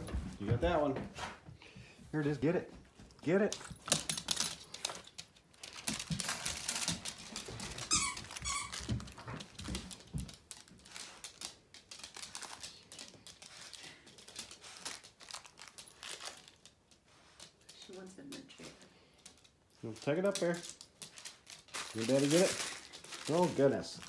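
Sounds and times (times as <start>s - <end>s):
puppies scuffling on wood floor: 0.0s - 24.0s.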